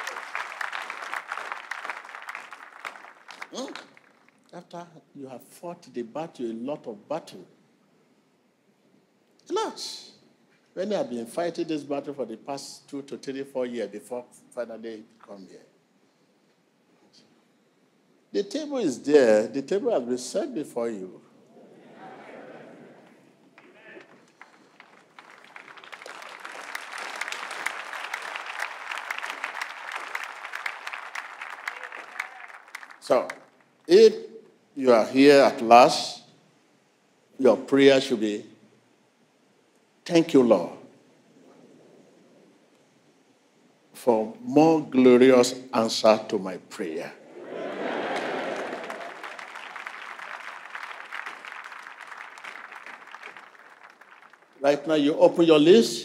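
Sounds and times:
crowd applauding: 0.0 - 4.5, 23.0 - 33.8, 47.3 - 54.9.

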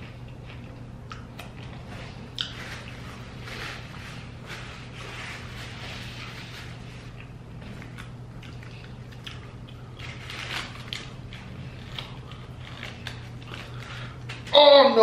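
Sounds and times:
chewing: 0.0 - 4.1, 7.0 - 14.5
steady low hum: 0.0 - 15.0
small clicks and crinkles: 7.1 - 14.5.

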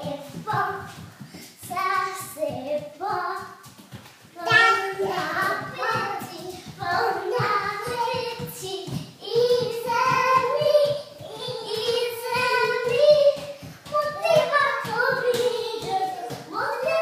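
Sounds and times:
child singing: 0.0 - 3.6, 4.4 - 17.0.

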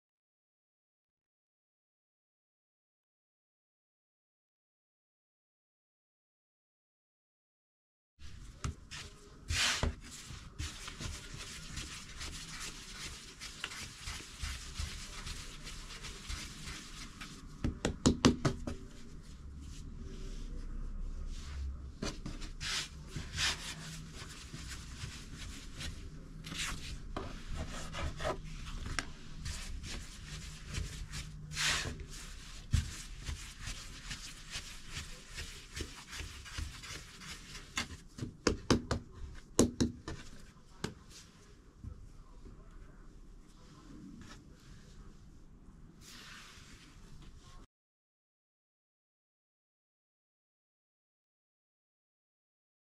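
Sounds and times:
hands kneading bread dough: 8.2 - 47.7.

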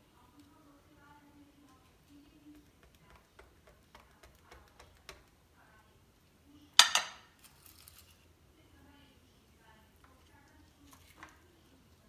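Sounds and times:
spatula ticks and taps: 2.3 - 5.4.

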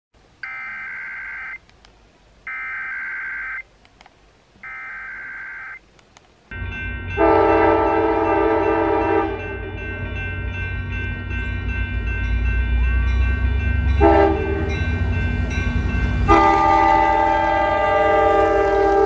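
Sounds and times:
emergency alert data bursts: 0.4 - 1.6, 2.5 - 3.7, 4.6 - 5.9
train rumble: 6.5 - 19.0
multi-note train horn: 7.2 - 9.7, 14.0 - 14.8, 16.2 - 19.0.

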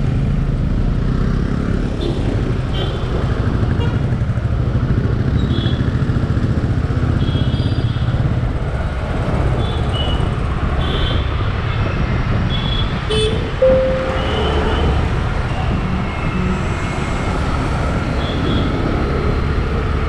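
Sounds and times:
motorbike engine and road rumble: 0.0 - 20.0
vehicle horn toots: 13.1 - 15.0
loud horn blast: 13.6 - 15.2.

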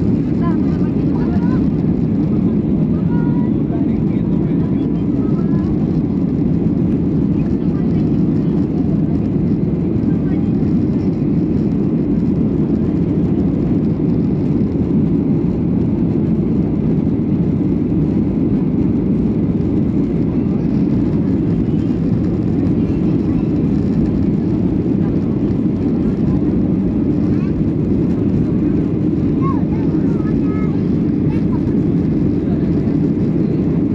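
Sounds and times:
airplane cabin rumble: 0.0 - 33.9.

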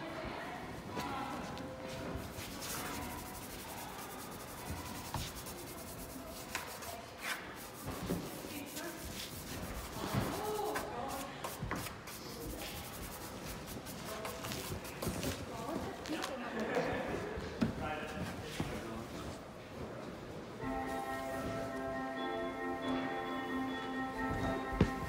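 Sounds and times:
background chatter: 0.0 - 25.0
rubbing and scuffing: 1.8 - 16.2.

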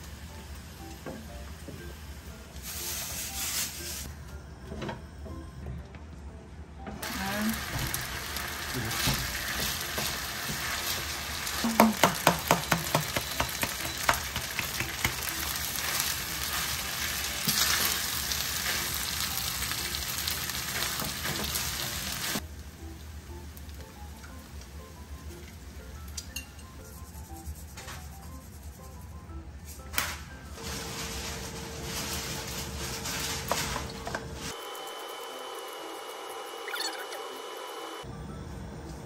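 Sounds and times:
rice sizzling in a wok: 0.0 - 4.1, 7.0 - 24.8, 30.5 - 36.5
spoon knocking on a pan: 11.8 - 15.3.

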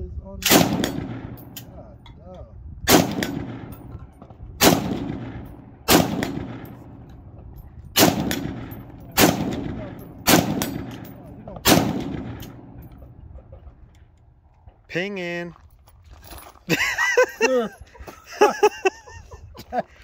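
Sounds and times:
pistol shots with echo: 0.4 - 1.7, 2.9 - 7.3, 8.0 - 13.3.

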